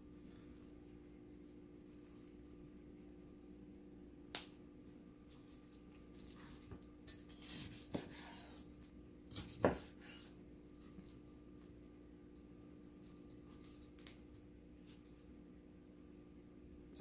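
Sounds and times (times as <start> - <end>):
knife rasping and scraping: 6.2 - 10.4.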